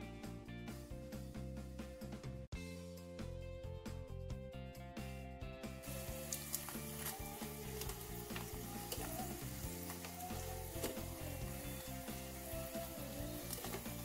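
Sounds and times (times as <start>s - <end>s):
hot oil sizzling: 5.7s - 14.0s.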